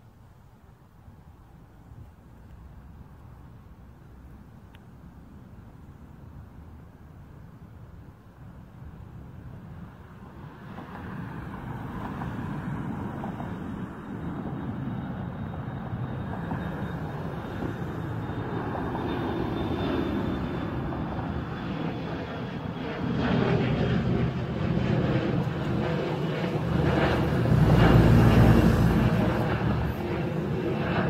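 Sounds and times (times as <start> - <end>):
faint high engine whine: 0.0 - 31.0
jet airliner engine rushing: 9.4 - 31.0.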